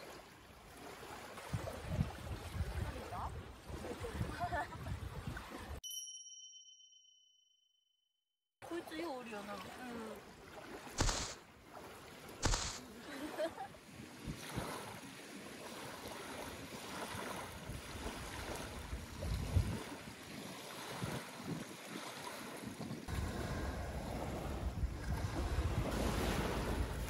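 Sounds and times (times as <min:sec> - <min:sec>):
wind buffeting microphone: 0:01.5 - 0:05.5, 0:17.5 - 0:27.0
waves lapping on gravel: 0:08.7 - 0:27.0.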